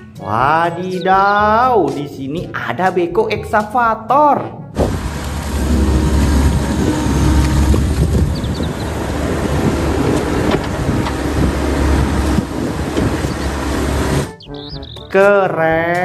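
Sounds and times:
dense rush of noise: 0:04.8 - 0:14.3
diesel engine rumble: 0:04.8 - 0:15.1.

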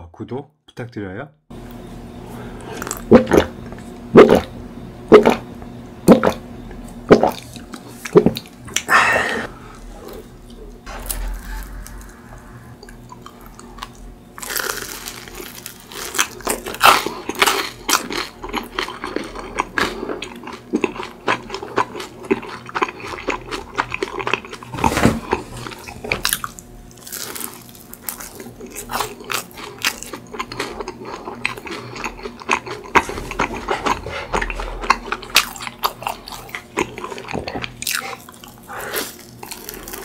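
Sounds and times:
crunching and chewing: 0:02.6 - 0:04.5, 0:12.8 - 0:40.0.

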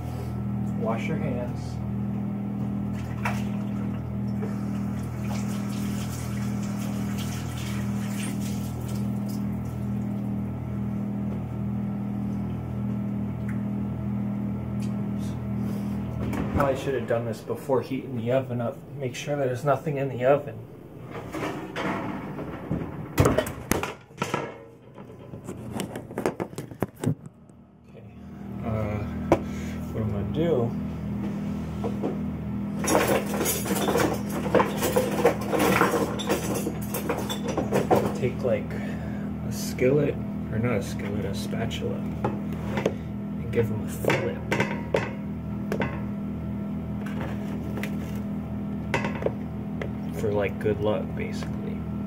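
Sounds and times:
hands washing under water: 0:04.5 - 0:09.9
tap running: 0:44.0 - 0:46.1, 0:47.0 - 0:50.6.

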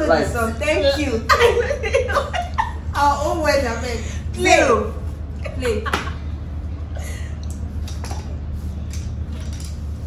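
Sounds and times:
low room hum: 0:00.0 - 0:10.0.

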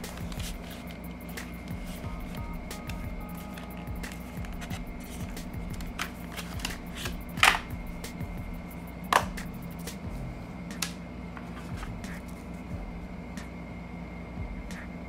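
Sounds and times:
packaging rustling and clicking: 0:00.1 - 0:07.7.

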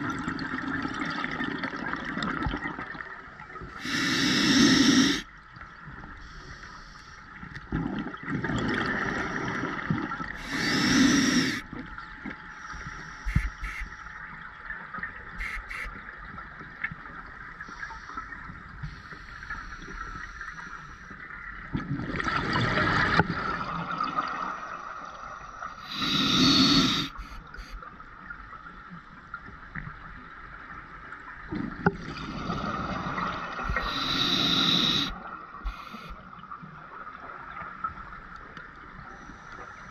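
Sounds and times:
hissing regulator inhalations: 0:03.8 - 0:05.3, 0:10.4 - 0:11.6, 0:25.8 - 0:27.8, 0:33.7 - 0:36.2.

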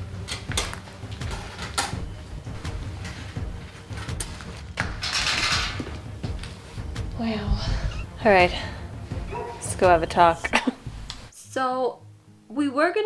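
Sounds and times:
cages clicking and knocking: 0:04.8 - 0:06.0.

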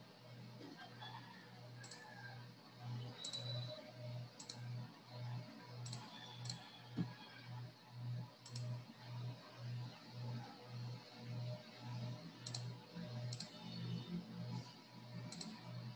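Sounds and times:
computer mouse clicks: 0:01.8 - 0:02.3, 0:03.1 - 0:04.8, 0:05.8 - 0:07.3, 0:08.4 - 0:08.8, 0:11.3 - 0:15.9.

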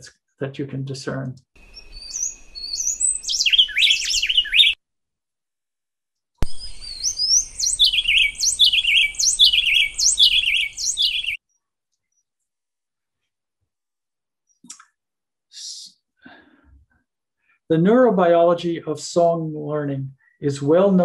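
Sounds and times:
jumbled whistled bird notes: 0:01.6 - 0:04.8, 0:06.4 - 0:11.4.

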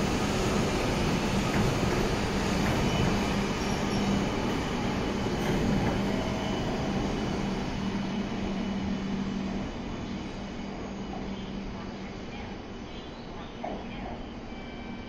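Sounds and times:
train running past platform: 0:00.0 - 0:15.0.

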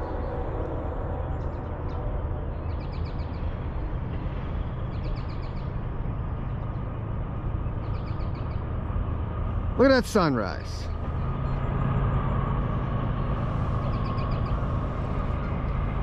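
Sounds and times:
distant diesel locomotive rumble: 0:00.0 - 0:16.0
birds chirping: 0:07.5 - 0:08.7, 0:13.2 - 0:16.0.

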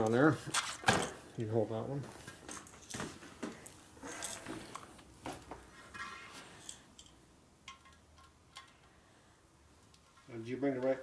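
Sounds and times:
small metal parts clinking: 0:04.1 - 0:04.8.

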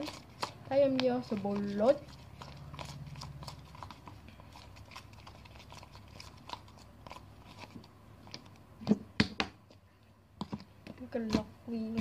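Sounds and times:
soapy water stirred in glass jar: 0:00.0 - 0:07.8.

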